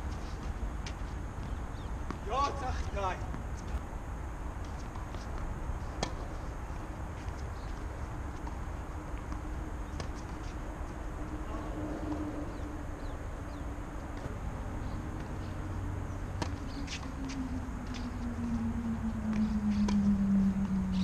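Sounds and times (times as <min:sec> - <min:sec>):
faint low hum: 0:00.0 - 0:21.0
outdoor rumble: 0:08.4 - 0:21.0.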